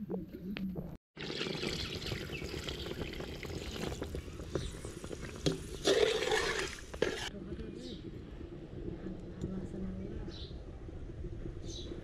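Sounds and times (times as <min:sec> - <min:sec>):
water pouring into a pot: 0:01.2 - 0:07.3.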